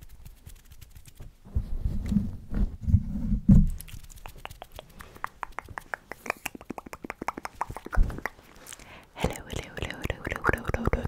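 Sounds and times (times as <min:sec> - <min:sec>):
lip smacks and mouth clicks: 0:03.7 - 0:08.9.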